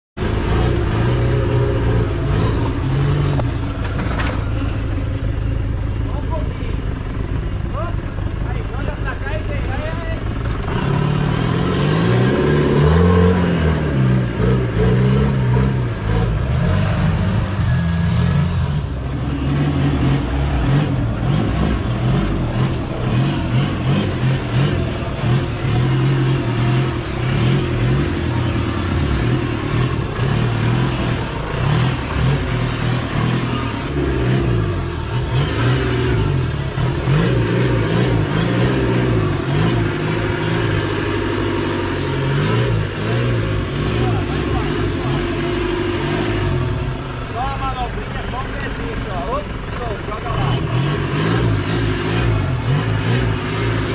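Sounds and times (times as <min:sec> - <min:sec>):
jeep engine revving under load: 0:00.2 - 0:03.8, 0:10.5 - 0:53.9.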